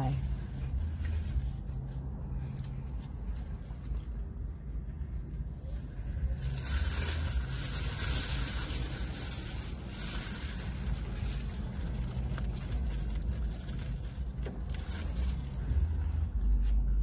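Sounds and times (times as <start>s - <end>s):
steady low rumble: 0.0s - 17.0s
crunching fried chicken: 6.1s - 15.9s.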